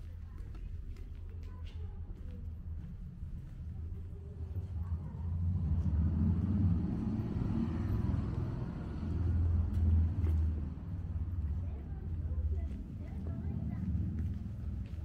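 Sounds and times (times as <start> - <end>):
car driving past: 5.1 - 11.7.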